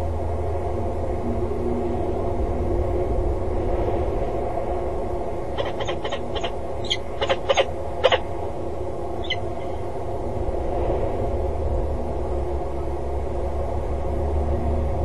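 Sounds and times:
steady low rumble: 0:00.0 - 0:15.0
falcon calling: 0:05.6 - 0:08.5, 0:09.2 - 0:09.8.

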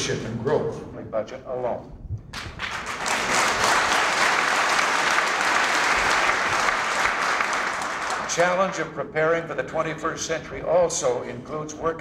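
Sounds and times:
audience applauding: 0:02.4 - 0:08.5.

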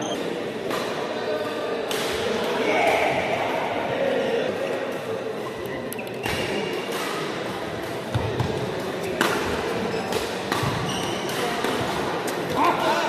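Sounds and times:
voices chattering: 0:00.0 - 0:13.0
racket hitting shuttlecock: 0:09.1 - 0:12.6.

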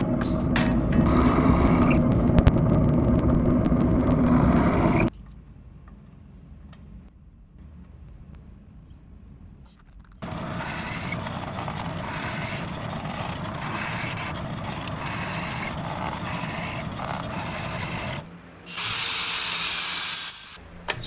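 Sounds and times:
drill press boring wood: 0:10.2 - 0:20.5.

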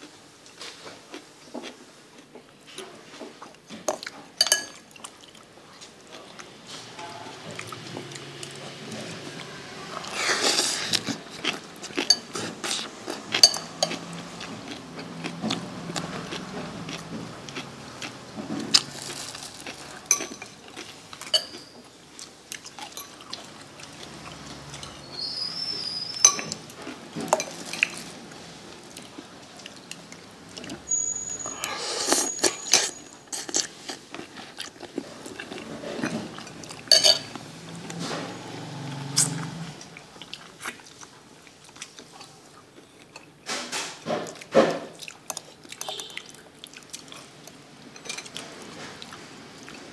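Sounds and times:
metal spoon clinking against bowl: 0:04.4 - 0:04.8, 0:13.4 - 0:14.0, 0:20.1 - 0:20.6, 0:21.2 - 0:21.8, 0:26.2 - 0:26.6, 0:36.9 - 0:37.4.

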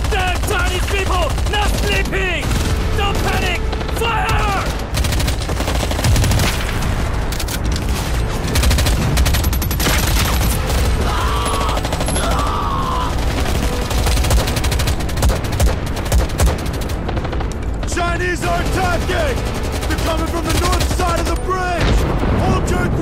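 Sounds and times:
rifle and machine-gun fire: 0:00.0 - 0:22.6
men shouting: 0:03.0 - 0:04.8, 0:11.0 - 0:13.4
heavy explosions: 0:21.8 - 0:23.0.

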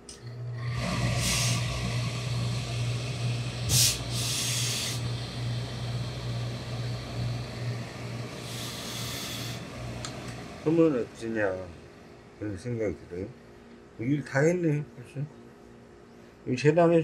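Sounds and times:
steady low hum: 0:00.0 - 0:17.0
steam iron hissing: 0:00.6 - 0:10.2.

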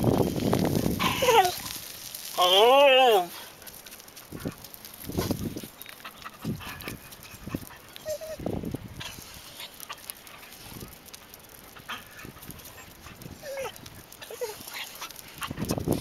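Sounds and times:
dogs play-fighting low rough noises: 0:00.0 - 0:02.0, 0:03.4 - 0:16.0
dog whining: 0:01.0 - 0:01.7, 0:06.2 - 0:08.5, 0:11.8 - 0:15.9.

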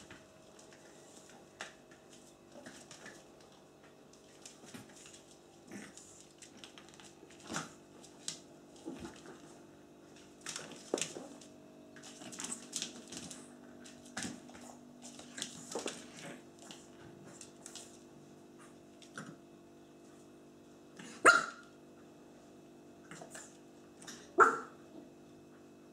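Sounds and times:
puppy claws clicking on floor: 0:00.0 - 0:19.4
faint steady hum: 0:00.0 - 0:25.9.

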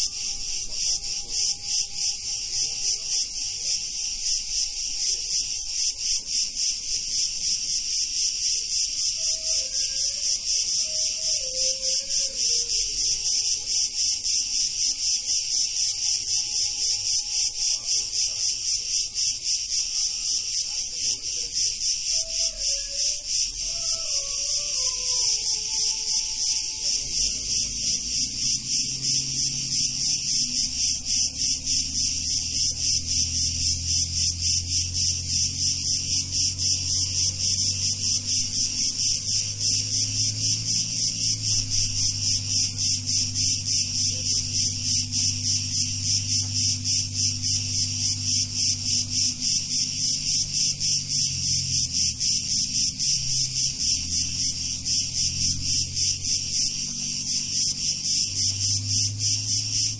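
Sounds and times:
low hum of sustained tones: 0:00.0 - 0:07.1, 0:22.5 - 0:59.9
cicadas buzzing: 0:00.0 - 0:59.9.

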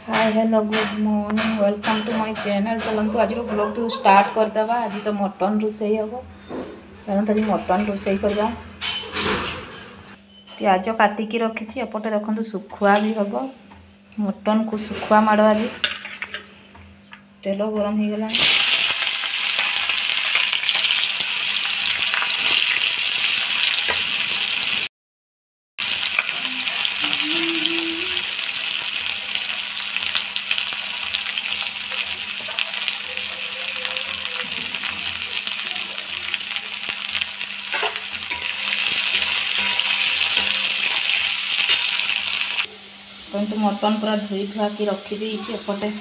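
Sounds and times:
onions sizzling in hot oil: 0:18.3 - 0:24.9, 0:25.8 - 0:42.7.

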